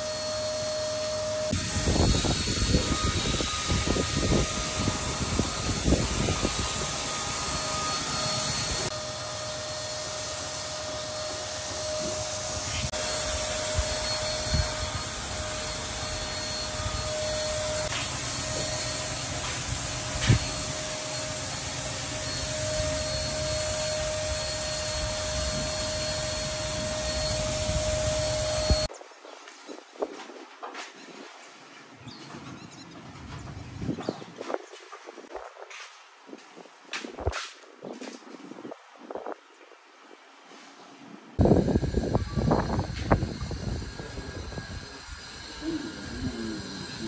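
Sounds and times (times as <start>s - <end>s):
electric paint sprayer running: 0.0s - 28.9s, 41.4s - 47.0s.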